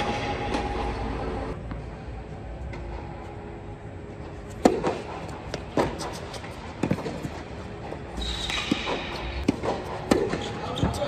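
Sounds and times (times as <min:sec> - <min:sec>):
tennis racket striking ball: 0:04.6 - 0:07.4, 0:08.2 - 0:10.6.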